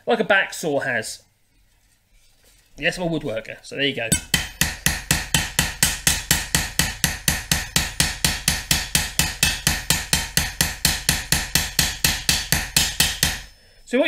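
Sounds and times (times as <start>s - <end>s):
hammer striking metal blade: 4.1s - 13.6s.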